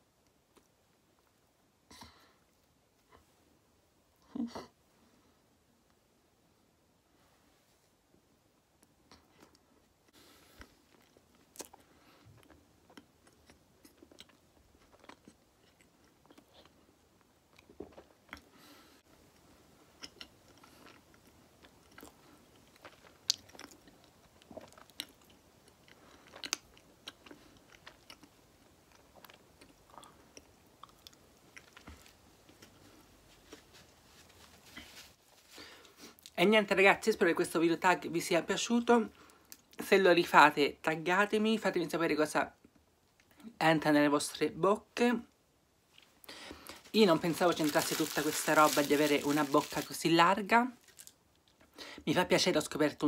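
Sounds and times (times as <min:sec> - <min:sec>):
person chewing with mouth clicks: 0:10.6 - 0:16.8, 0:19.9 - 0:32.8.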